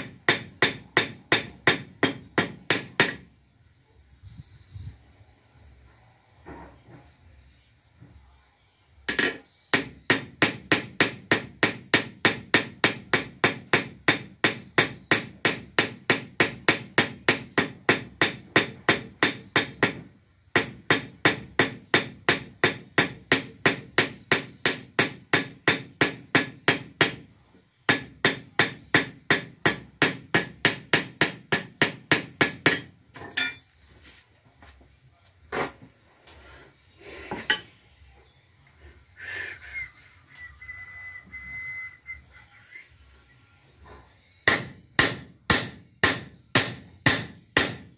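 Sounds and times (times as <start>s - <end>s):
hammer striking metal: 0.0s - 3.3s, 9.1s - 27.2s, 27.9s - 33.7s, 44.4s - 47.9s.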